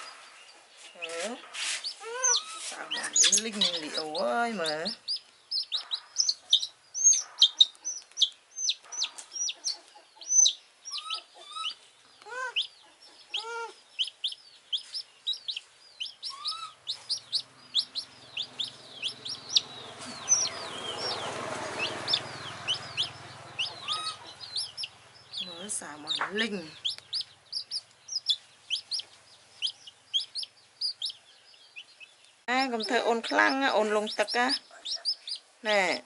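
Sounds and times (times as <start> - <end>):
chick peeping: 0.0 - 36.0
lower chick calls: 1.8 - 32.0, 32.6 - 36.0.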